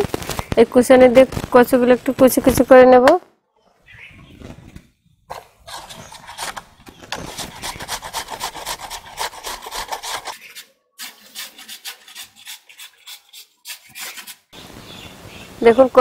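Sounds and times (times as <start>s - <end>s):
grating on metal grater: 5.7s - 6.6s, 7.2s - 14.5s.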